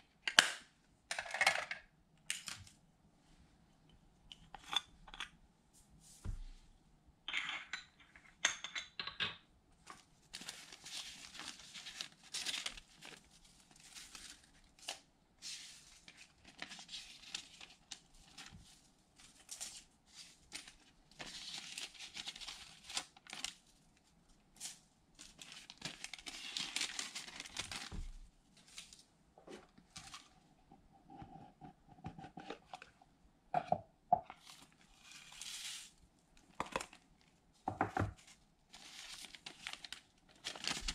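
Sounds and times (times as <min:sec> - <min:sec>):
metallic foil tearing and crinkling: 0:10.4 - 0:15.0, 0:24.6 - 0:27.9, 0:38.8 - 0:40.9.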